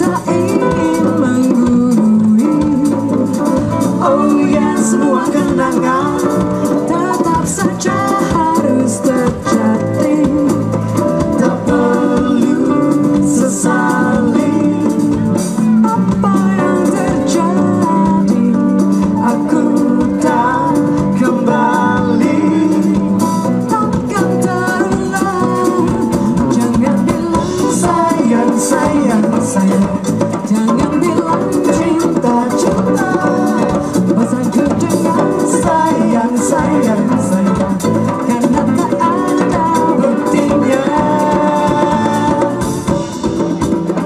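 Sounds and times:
djembe hand drums: 0:00.0 - 0:44.0
live band playing pop song: 0:00.0 - 0:44.0
woman singing lead: 0:00.0 - 0:44.0
backing singers: 0:07.4 - 0:15.2, 0:30.9 - 0:43.1.

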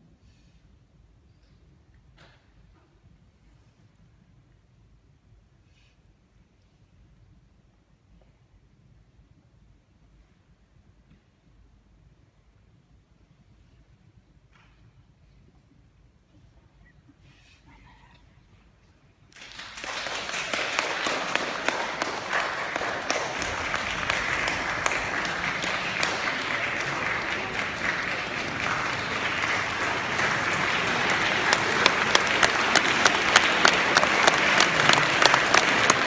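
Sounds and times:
audience applause: 0:19.3 - 0:36.0
sharp individual claps: 0:19.3 - 0:36.0.

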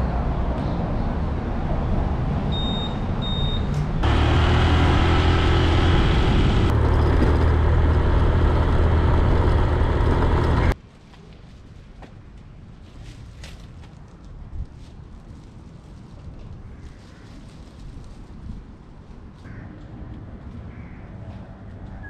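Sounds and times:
faint outdoor ambience: 0:00.0 - 0:22.0
motorcycle engine rumble: 0:04.0 - 0:10.8.

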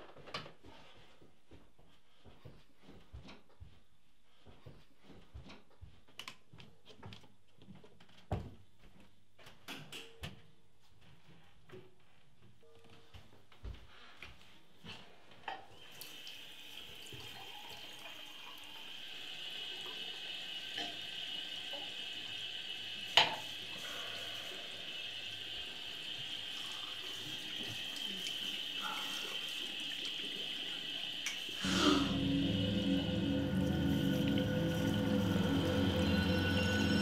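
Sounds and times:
tap running into sink basin: 0:23.2 - 0:23.6.

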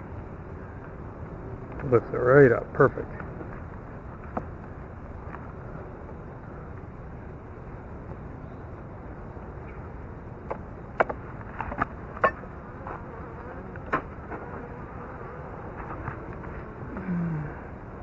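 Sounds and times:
bees buzzing: 0:12.4 - 0:17.7.

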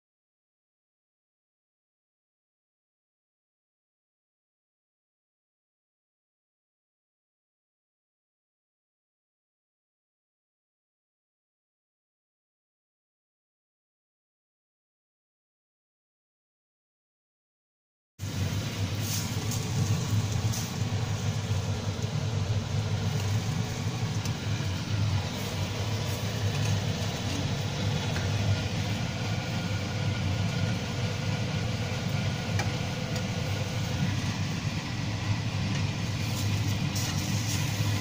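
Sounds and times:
even hiss: 0:18.2 - 0:29.2
low machine hum: 0:18.2 - 0:38.0.

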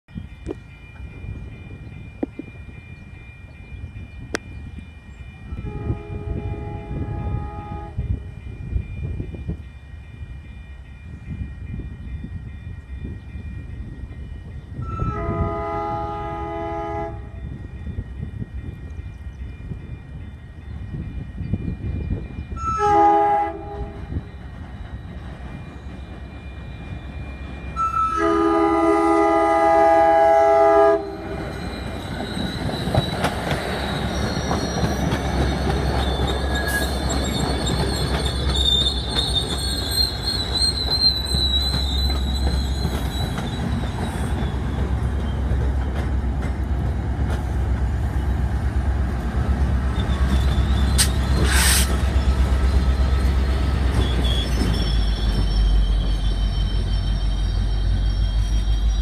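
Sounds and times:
crossing signal ringing: 0:00.2 - 0:59.0
train horn blasts: 0:05.5 - 0:08.3, 0:14.8 - 0:17.4, 0:22.6 - 0:24.3, 0:27.8 - 0:31.6, 0:50.2 - 0:52.2.

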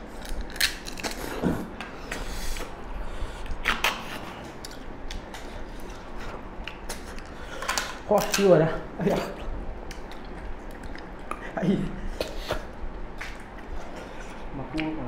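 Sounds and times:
chewing and sucking: 0:09.3 - 0:11.5.

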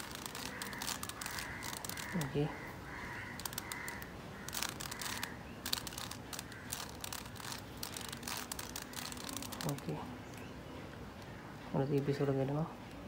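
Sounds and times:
plastic puzzle cube clicking: 0:00.0 - 0:02.4, 0:03.3 - 0:09.9.

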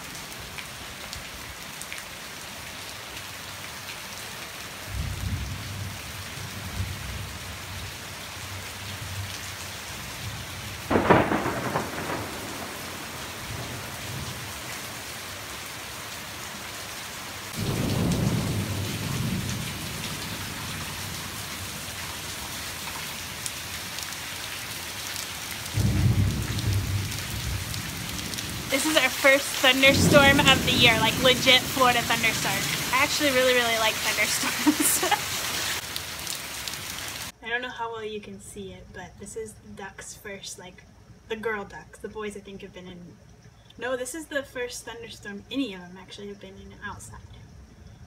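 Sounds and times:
heavy rain on pavement: 0:00.0 - 0:37.4
thunder rumbling: 0:04.9 - 0:08.0, 0:09.9 - 0:15.5, 0:17.5 - 0:23.4, 0:25.6 - 0:35.8
loud thunder crack: 0:10.9 - 0:14.5, 0:17.5 - 0:21.2, 0:25.7 - 0:33.7.

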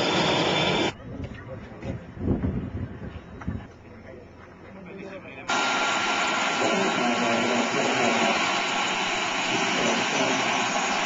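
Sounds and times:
gas turbine engine hiss and whine: 0:00.0 - 0:01.0, 0:05.5 - 0:11.0.

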